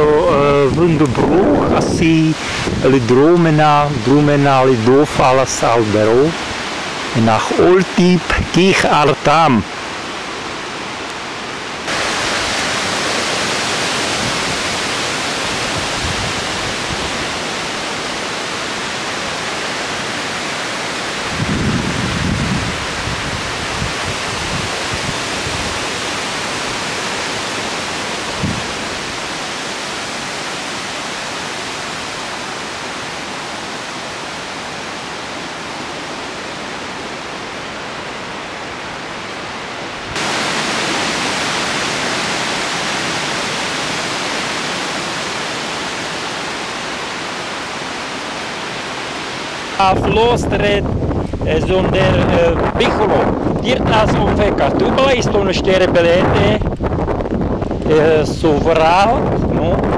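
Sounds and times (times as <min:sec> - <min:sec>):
wind buffeting microphone: 0:00.0 - 0:04.2, 0:14.1 - 0:17.4, 0:21.2 - 0:26.0, 0:28.3 - 0:29.3, 0:49.9 - 0:59.9
outdoor rush of noise: 0:00.0 - 0:59.9.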